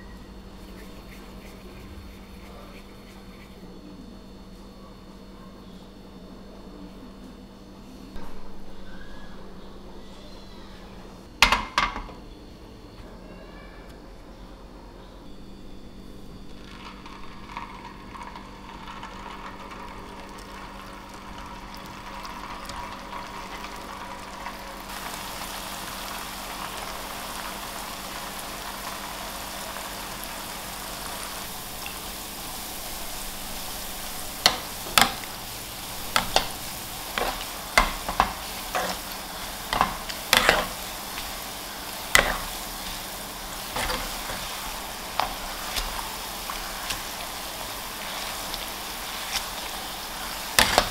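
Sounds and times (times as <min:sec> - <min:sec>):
dough sizzling in hot oil: 0:16.3 - 0:50.9.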